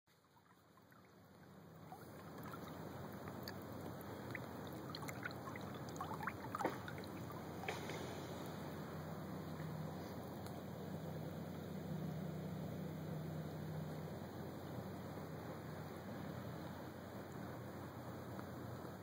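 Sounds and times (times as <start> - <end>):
water lapping at hull: 0.1 - 12.2.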